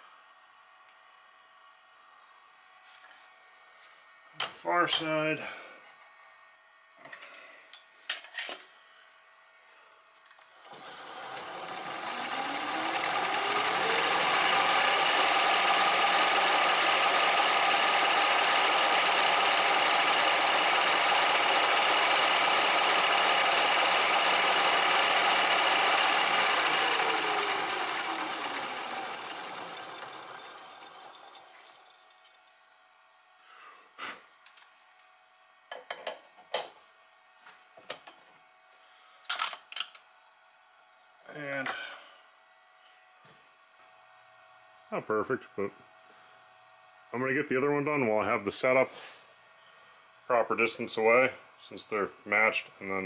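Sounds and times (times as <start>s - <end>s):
milling machine motor whine: 10.3s - 32.5s
cutter machining metal: 10.4s - 31.6s.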